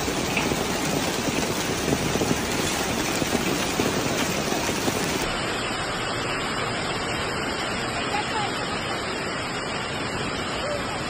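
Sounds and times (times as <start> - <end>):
hail striking pavement: 0.0 - 5.3
hail and rain storm rush: 0.0 - 11.0.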